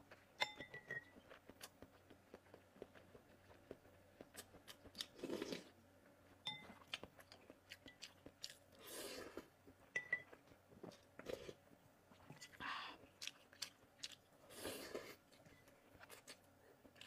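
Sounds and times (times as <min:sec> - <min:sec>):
soft chewing and mouth clicks: 0:00.0 - 0:17.0
spoon clinking on ceramic bowl: 0:00.4 - 0:01.1, 0:10.0 - 0:10.3.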